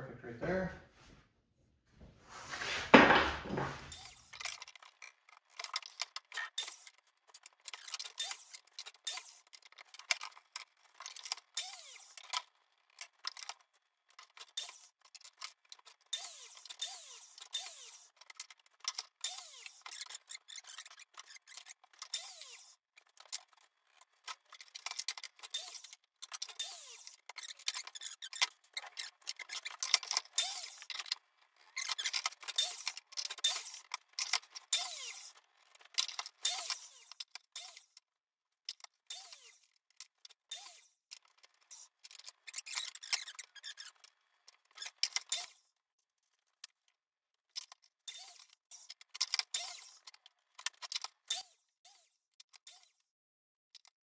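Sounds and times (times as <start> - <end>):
wood clicks knocks and scrapes: 2.5 - 11.5.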